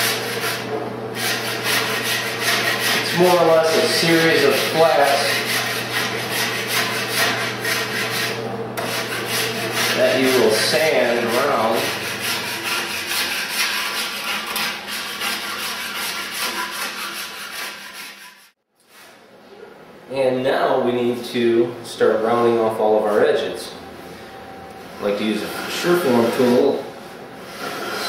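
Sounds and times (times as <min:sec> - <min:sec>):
hand plane shaving wood: 0:00.0 - 0:18.6, 0:27.4 - 0:28.0.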